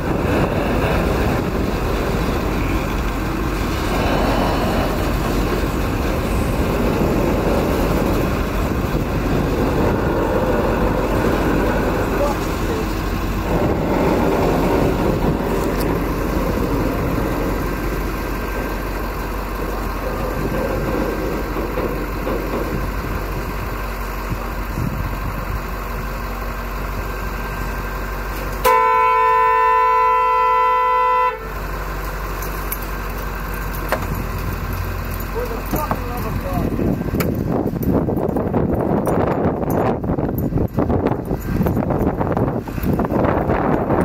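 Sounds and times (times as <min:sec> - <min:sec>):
train wheels rolling on rail: 0:00.0 - 0:44.0
truck horn blast: 0:28.6 - 0:31.6.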